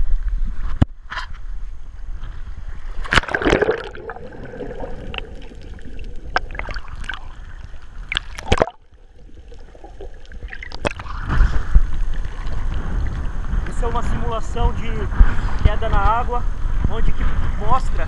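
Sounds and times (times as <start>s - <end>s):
underwater bubbling and gurgling: 2.7s - 13.8s
splash into water: 2.9s - 12.8s
sharp underwater clicks: 3.0s - 12.8s.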